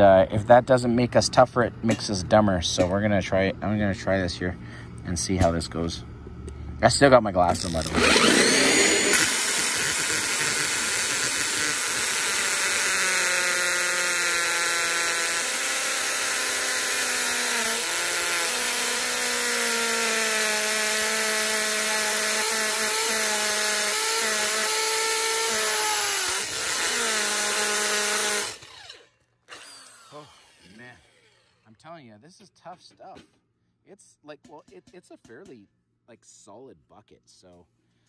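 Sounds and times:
power drill grinding through metal: 7.5 - 31.7.

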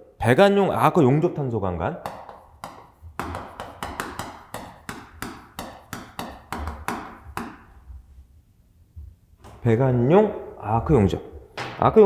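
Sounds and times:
chalk tapping on chalkboard: 2.0 - 7.8.

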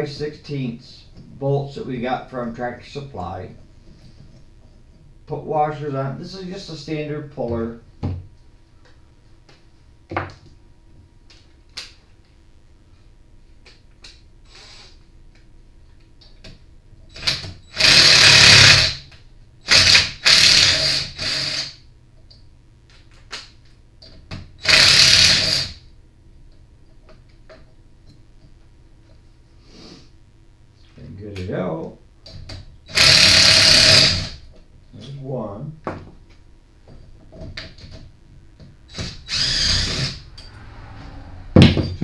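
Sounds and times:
impact driver bursts: 17.1 - 21.8, 24.6 - 25.8, 32.9 - 34.4, 38.9 - 40.2.

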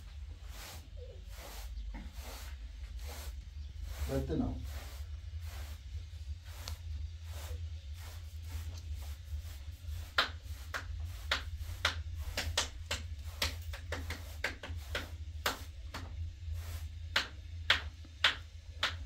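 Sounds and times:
steady low hum: 0.0 - 19.0
sharp taps and clicks: 10.1 - 16.1, 17.1 - 19.0.

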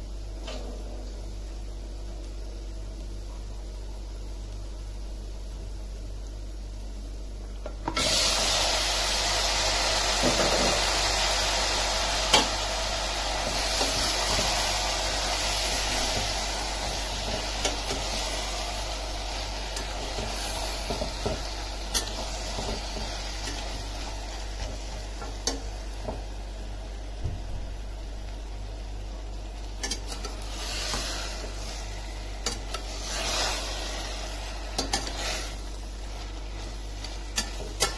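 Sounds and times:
meat sizzling in hot oil: 7.9 - 37.9.

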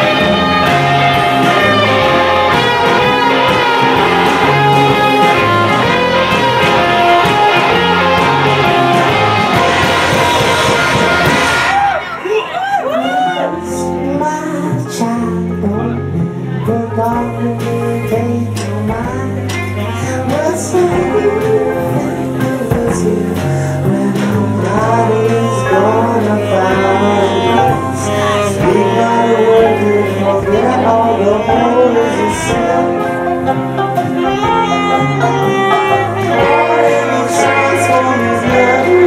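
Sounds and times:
voices singing: 0.0 - 12.5, 13.4 - 39.0
saxophone: 0.0 - 14.0, 14.9 - 39.0
drums: 0.0 - 39.0
electric guitars: 0.0 - 39.0
banjo: 14.9 - 39.0.

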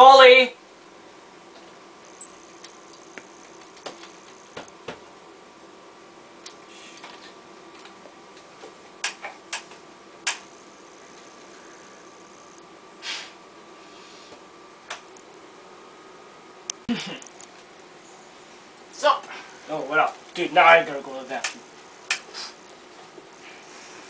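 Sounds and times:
faint steady hum: 0.0 - 24.0
thin high whine: 1.6 - 7.4, 10.0 - 14.8.

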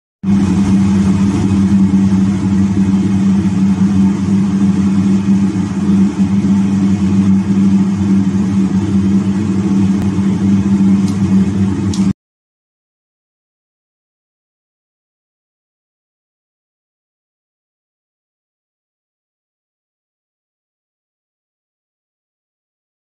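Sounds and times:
loud machine hum: 0.2 - 12.2.

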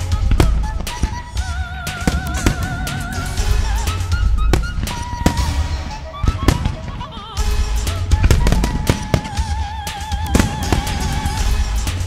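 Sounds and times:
firework shells bursting: 0.0 - 12.0
loud music with wavering melody: 0.0 - 12.0.

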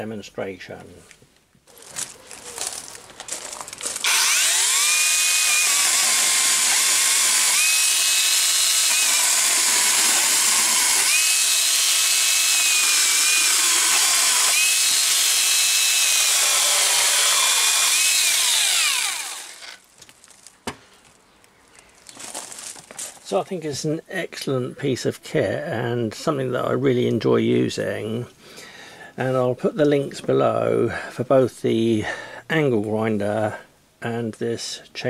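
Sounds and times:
chainsaw sawing through wood: 4.0 - 19.8.

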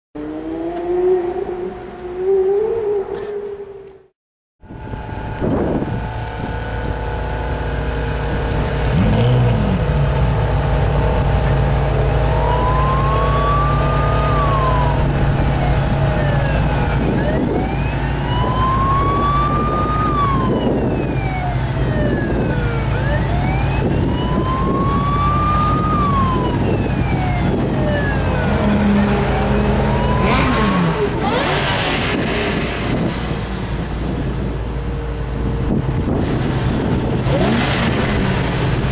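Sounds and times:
siren wailing: 0.2 - 4.0, 11.9 - 31.6.

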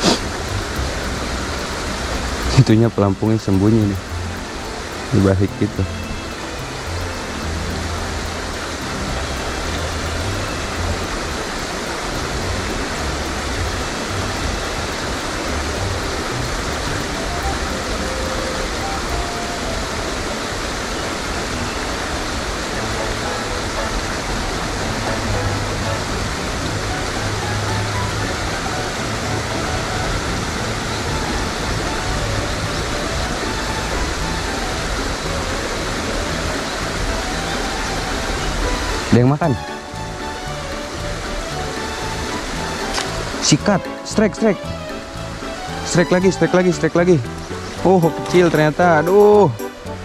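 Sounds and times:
low rumbles: 0.0 - 50.0.

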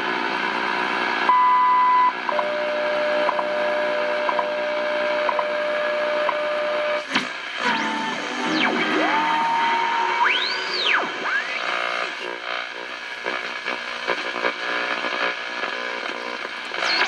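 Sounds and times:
radio speaker hissing: 7.1 - 17.0.

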